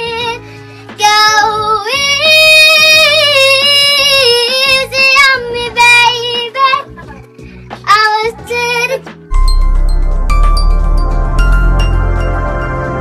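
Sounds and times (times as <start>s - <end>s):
girl singing a slow ballad: 0.0s - 7.2s, 7.8s - 9.2s.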